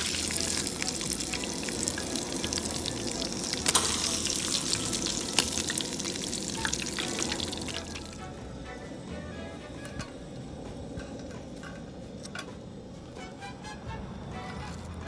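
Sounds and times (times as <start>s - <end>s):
fish sizzling in hot oil: 0.0s - 8.3s.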